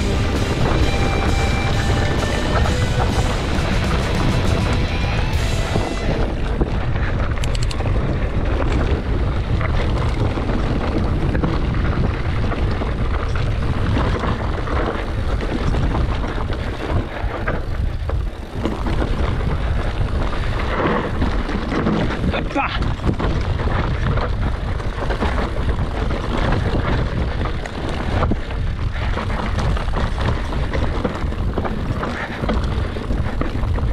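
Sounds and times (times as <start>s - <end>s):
bike rattling on rocky trail: 0.0s - 33.9s
wind buffeting microphone: 0.0s - 33.9s.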